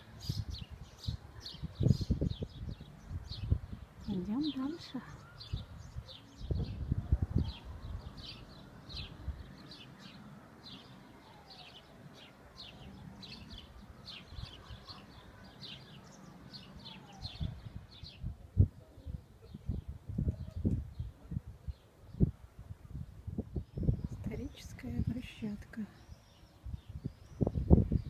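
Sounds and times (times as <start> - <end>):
outdoor background noise: 0.0 - 28.0
small birds chirping: 0.0 - 28.0.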